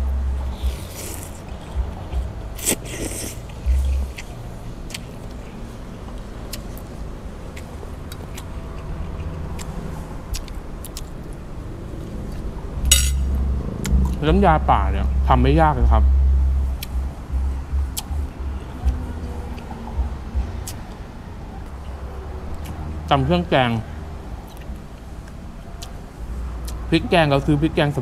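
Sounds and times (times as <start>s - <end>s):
person chewing: 0.4s - 5.4s, 6.1s - 11.4s, 20.6s - 20.9s, 24.5s - 26.0s
person slurping noodles: 0.6s - 1.4s, 2.6s - 3.5s
cutlery clicking on plate: 12.9s - 13.2s.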